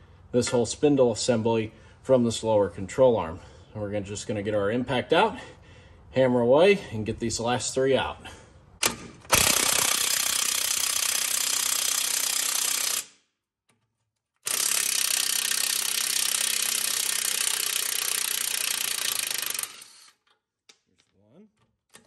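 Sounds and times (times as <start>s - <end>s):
impact wrench hammering bolts: 8.8s - 13.1s, 14.4s - 21.1s.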